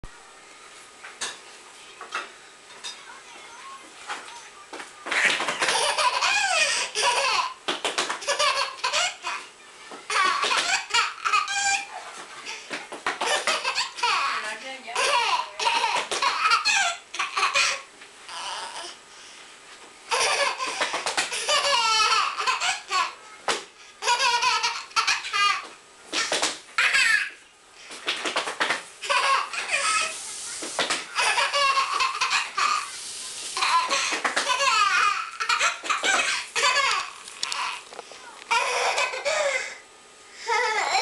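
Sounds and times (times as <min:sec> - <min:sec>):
toddler laughing: 0:05.2 - 0:07.6, 0:08.2 - 0:09.5, 0:10.1 - 0:12.0, 0:13.2 - 0:18.9, 0:20.1 - 0:23.2, 0:24.0 - 0:27.4, 0:29.0 - 0:30.2, 0:31.1 - 0:32.9, 0:33.6 - 0:37.8, 0:38.5 - 0:39.8, 0:40.4 - 0:41.0.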